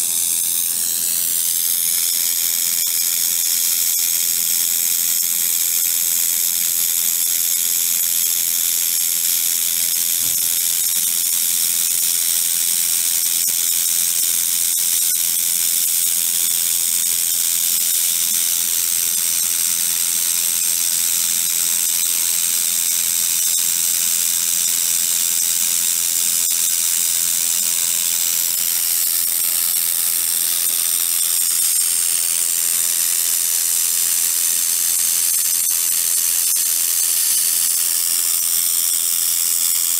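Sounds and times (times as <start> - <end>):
laser welder hissing: 0.0 - 39.9.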